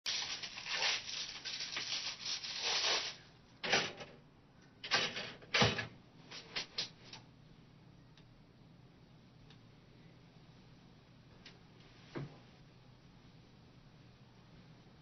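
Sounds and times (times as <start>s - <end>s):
foil wrapper crinkling and tearing: 0.1s - 3.3s.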